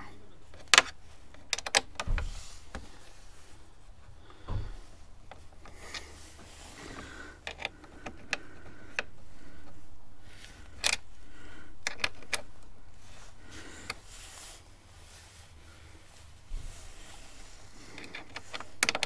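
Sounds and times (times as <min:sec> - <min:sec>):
hand tool clicking on screws: 0:00.5 - 0:02.9, 0:06.8 - 0:09.8, 0:10.4 - 0:12.7, 0:18.0 - 0:19.0
jacket sleeve rustling: 0:02.2 - 0:11.6, 0:12.3 - 0:18.8.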